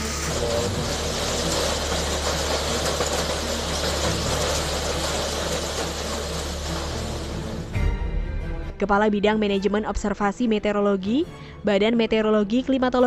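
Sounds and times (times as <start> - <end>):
hail striking ground and tile roof: 0.0 - 7.8.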